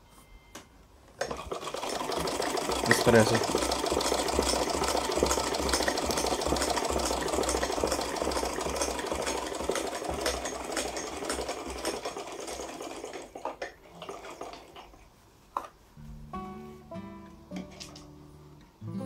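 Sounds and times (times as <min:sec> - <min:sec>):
sewing machine stitching: 0:01.2 - 0:15.0.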